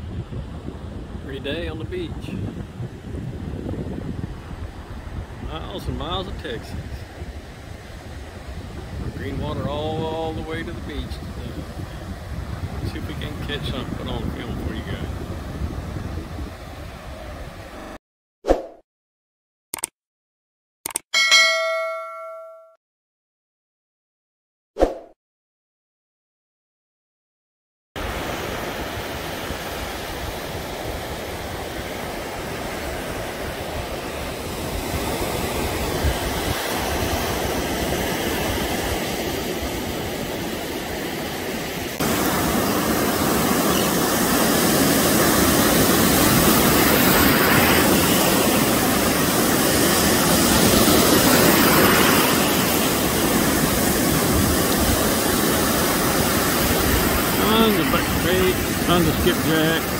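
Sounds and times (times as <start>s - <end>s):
surf breaking on a beach: 0.0s - 18.0s, 28.0s - 59.9s.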